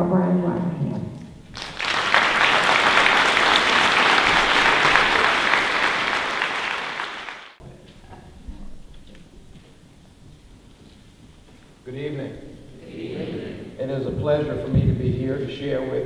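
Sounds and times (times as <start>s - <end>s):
audience applauding: 1.5s - 7.6s.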